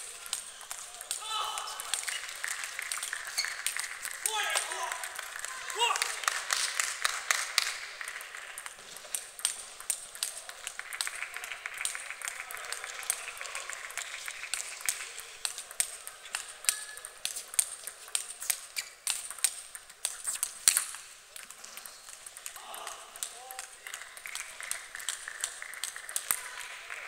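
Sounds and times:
table tennis balls clicking: 0.1 - 5.5, 6.7 - 26.6.

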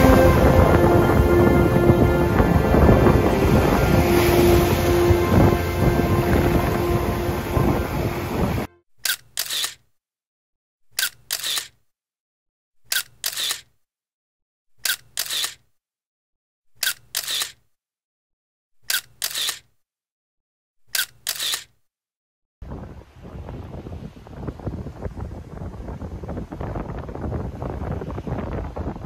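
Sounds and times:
camera shutter clicking: 9.0 - 9.8, 11.0 - 11.8, 12.9 - 13.7, 14.8 - 15.6, 16.8 - 17.6, 18.9 - 19.6, 21.0 - 21.7.

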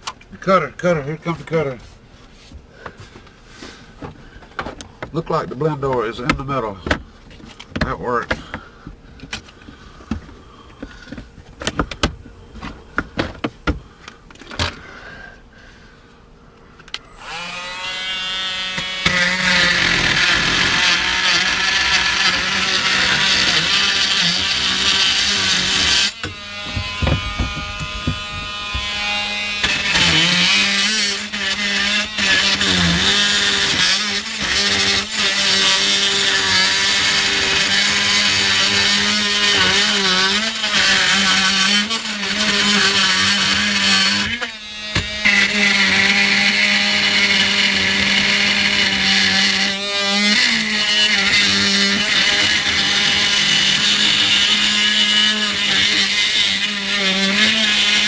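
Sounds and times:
power cutter cutting: 16.9 - 58.0.

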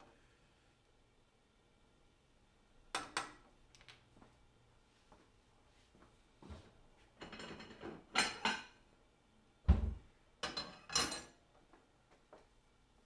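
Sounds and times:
ceramic plate clattering: 7.2 - 8.8.

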